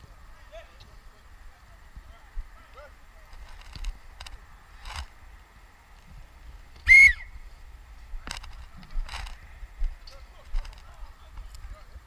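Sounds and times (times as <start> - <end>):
referee's whistle blast: 6.9 - 7.3.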